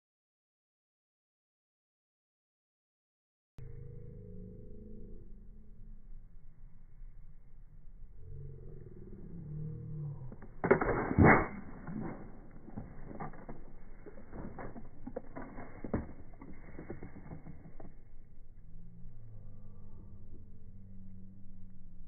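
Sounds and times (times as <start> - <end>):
scattered crackles and clicks: 10.3 - 18.4.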